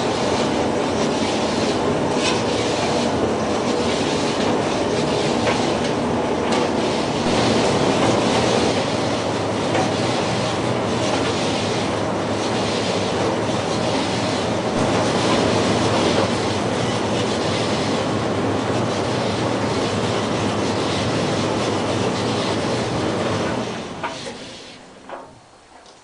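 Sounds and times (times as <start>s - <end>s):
tumble dryer running: 0.0s - 25.6s
low motor hum: 13.8s - 16.8s.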